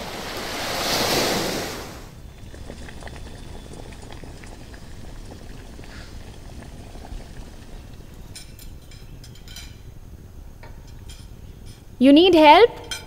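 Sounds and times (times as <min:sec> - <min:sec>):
rush of noise: 0:00.0 - 0:02.2
water boiling in a saucepan: 0:00.0 - 0:12.0.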